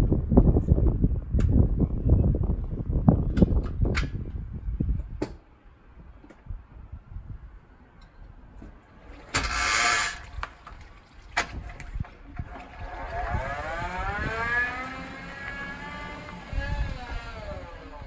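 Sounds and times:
electric motor whine rising: 12.8s - 18.0s.

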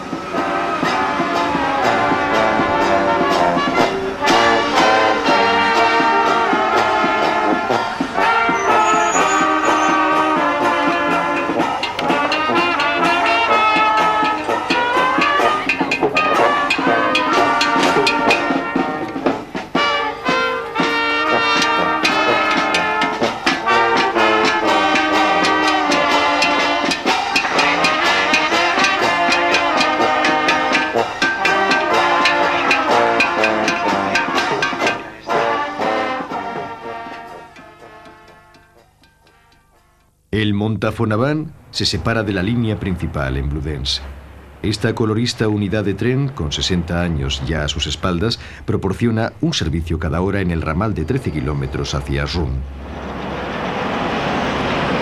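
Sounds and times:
brass band playing: 0.0s - 40.3s
steady drum beat: 0.0s - 40.4s.

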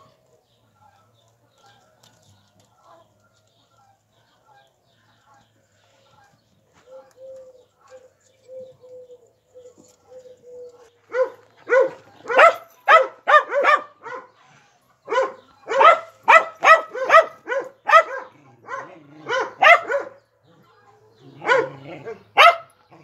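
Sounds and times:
dog barking: 11.1s - 14.4s, 15.1s - 20.3s, 21.2s - 22.9s.

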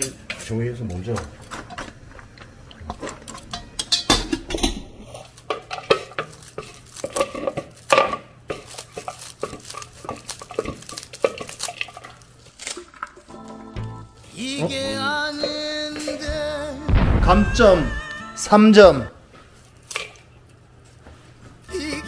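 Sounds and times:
utensils clinking on metal pot: 0.0s - 12.2s
kitchen scissors snipping: 3.2s - 13.2s, 19.7s - 20.3s
low steady hum: 13.3s - 21.8s.

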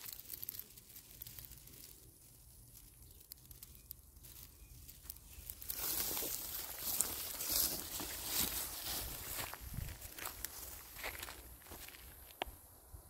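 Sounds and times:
dry grass rustling: 0.0s - 12.7s
dry soil and grass crackling: 0.0s - 13.0s
footsteps: 5.0s - 12.6s.

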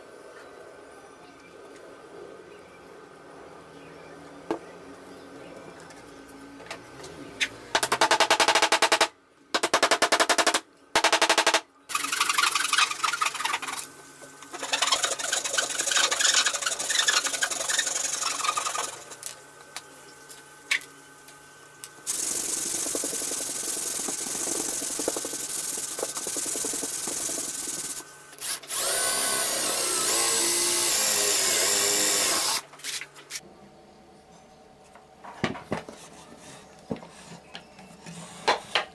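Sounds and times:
power drill driving screws: 28.4s - 32.6s.

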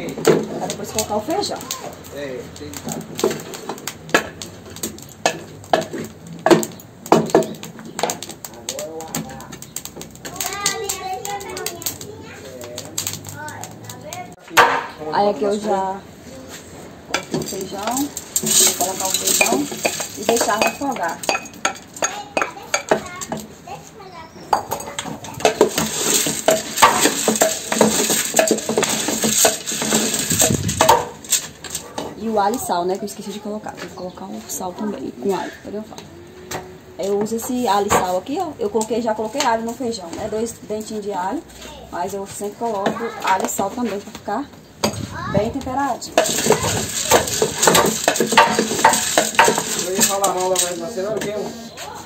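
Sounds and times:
meat sauteing in a pot: 0.0s - 14.4s, 17.0s - 31.7s, 37.2s - 52.0s
food sizzling: 0.0s - 35.5s, 36.1s - 52.0s
spoon clanking against metal pot: 17.1s - 23.0s.

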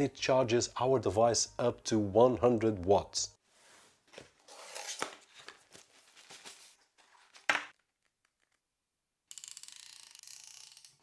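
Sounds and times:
cardboard packaging rustling: 4.0s - 7.8s.

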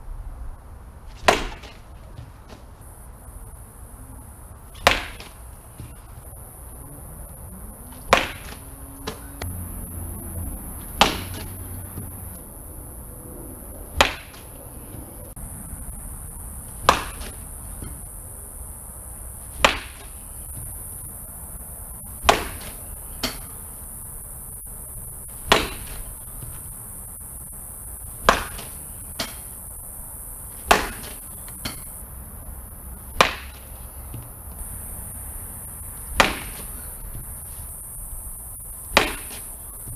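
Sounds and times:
bat hitting ball cracks: 1.1s - 2.7s, 4.7s - 6.2s, 7.9s - 9.6s, 10.8s - 12.5s, 13.9s - 15.0s, 16.7s - 18.1s, 19.5s - 21.2s, 22.0s - 23.7s, 25.4s - 26.6s, 28.1s - 29.8s, 30.5s - 32.0s, 33.1s - 34.0s, 36.1s - 37.2s, 38.9s - 39.7s.

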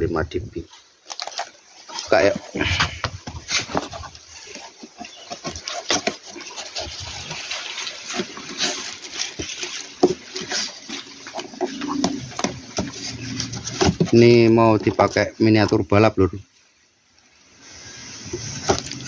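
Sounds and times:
paper and plastic wrap rustling: 0.7s - 16.2s
cardboard box flaps scraping: 2.0s - 14.5s.

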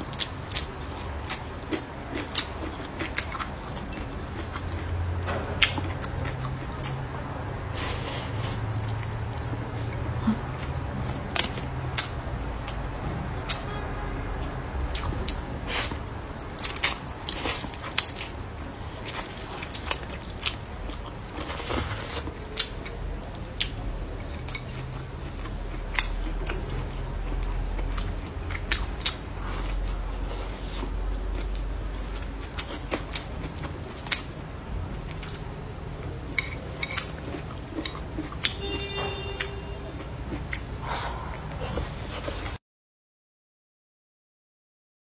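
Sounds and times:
chewing and mouth smacks: 0.1s - 7.0s, 8.3s - 12.8s, 14.9s - 34.4s, 36.3s - 38.6s.

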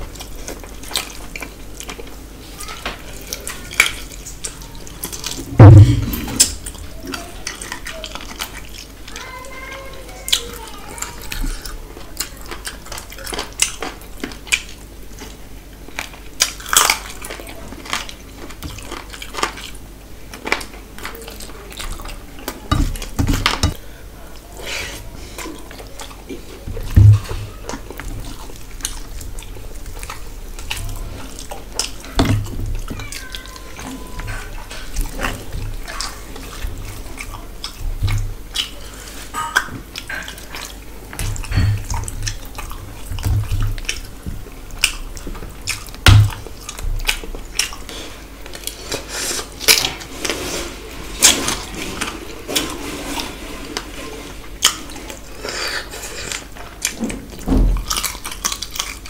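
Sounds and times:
dull thumps: 5.4s - 6.6s, 26.7s - 27.5s.

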